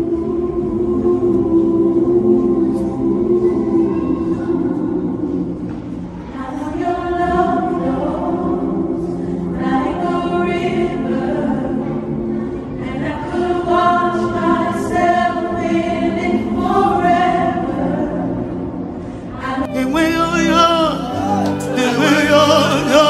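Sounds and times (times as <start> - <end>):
choir singing held notes: 19.4 - 23.0.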